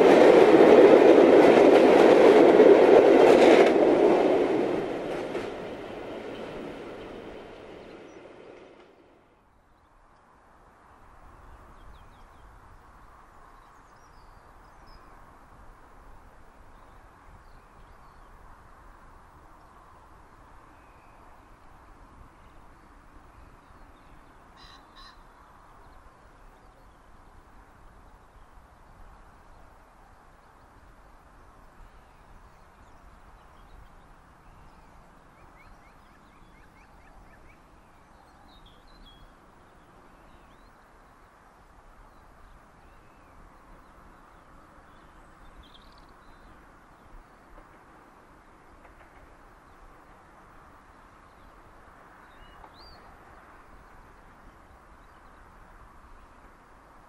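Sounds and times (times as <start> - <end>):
faint outdoor background noise: 0.0 - 57.0
bird calls: 23.5 - 25.5.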